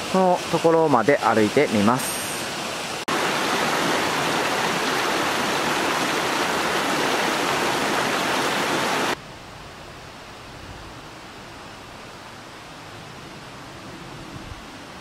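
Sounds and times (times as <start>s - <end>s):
stream rushing over stones: 0.0s - 9.2s.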